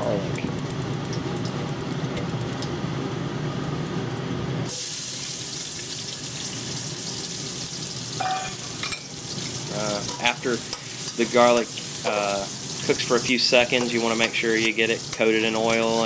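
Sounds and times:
gas burner rumbling: 0.0 - 16.0
garlic sizzling in hot oil: 4.6 - 16.0.

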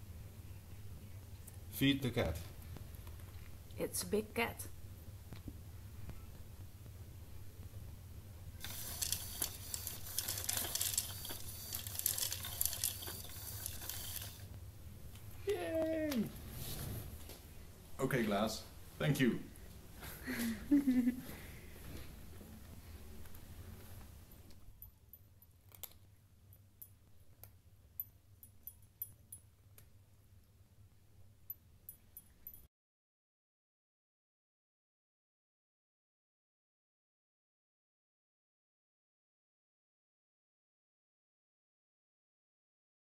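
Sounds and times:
kibble rattling into bowl: 8.6 - 14.5
servo motor turning: 8.6 - 14.5.

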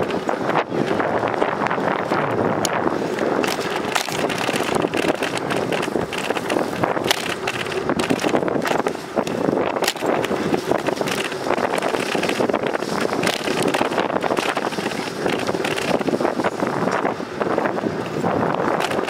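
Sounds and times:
wind on microphone: 0.0 - 19.0
sharp crackles: 3.2 - 16.6.

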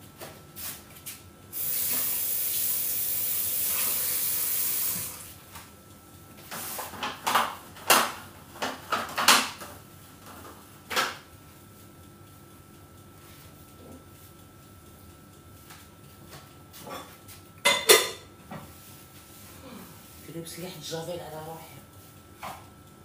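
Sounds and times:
kitchen tap running: 1.5 - 5.3
dishes clattering at sink: 16.9 - 18.3.

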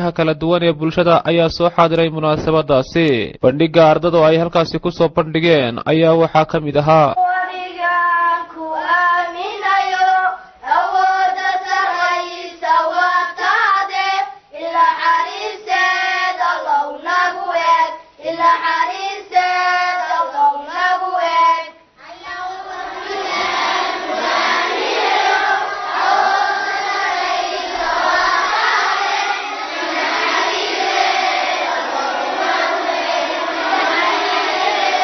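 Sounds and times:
child singing into a microphone: 7.2 - 23.6
crowd noise: 22.0 - 35.0.

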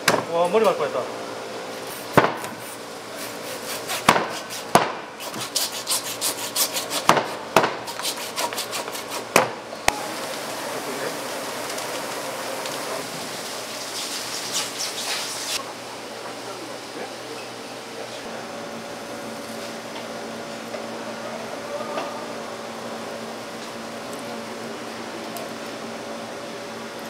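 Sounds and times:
knife scraping fish: 1.9 - 9.3.

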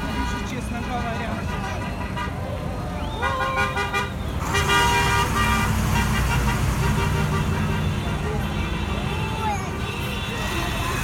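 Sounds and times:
heavy vehicles rumbling past: 0.0 - 11.0
vehicle horn blasts: 3.2 - 8.0.

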